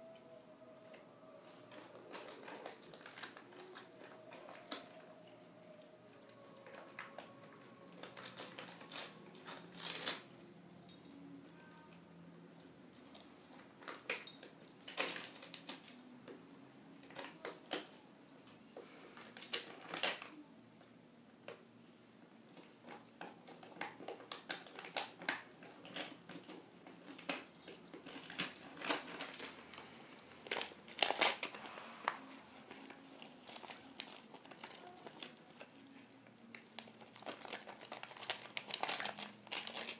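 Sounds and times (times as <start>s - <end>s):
wrapper crinkling: 1.5s - 11.0s, 13.1s - 16.1s, 19.1s - 20.4s, 22.8s - 39.9s.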